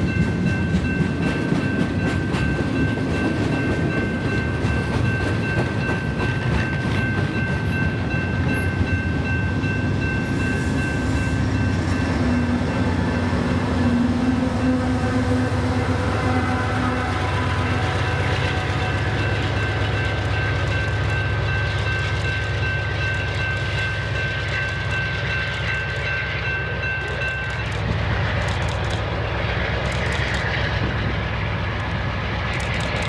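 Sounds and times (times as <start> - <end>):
diesel locomotives rumbling: 0.0 - 33.0
high-pitched ringing tone: 2.1 - 15.2.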